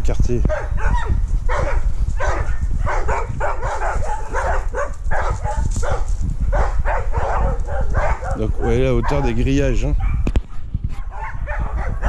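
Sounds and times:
dogs barking and yipping: 0:00.5 - 0:12.0.

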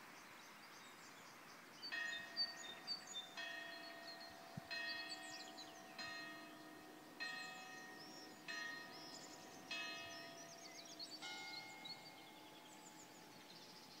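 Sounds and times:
birds chirping: 0:00.0 - 0:14.0
church bells tolling: 0:03.3 - 0:13.3.

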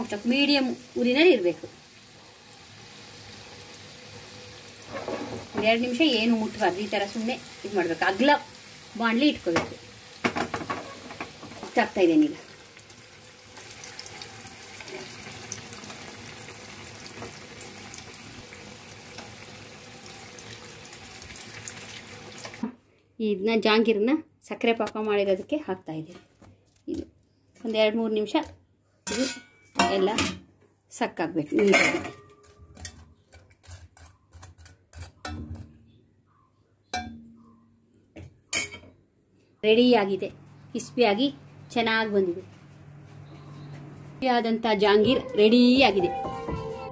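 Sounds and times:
deep-frying in hot oil: 0:00.0 - 0:22.7.

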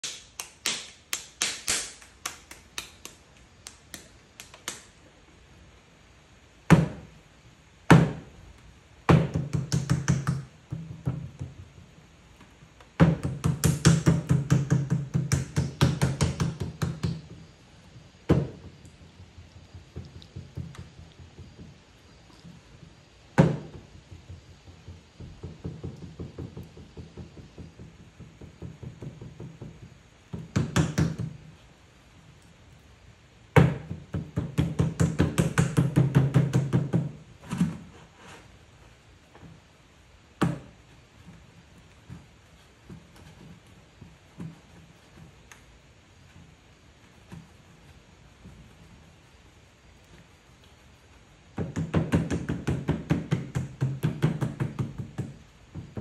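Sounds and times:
hands slapping wet clay: 0:00.0 - 0:05.0
hard thumps on board: 0:18.3 - 0:21.8, 0:22.7 - 0:31.4.

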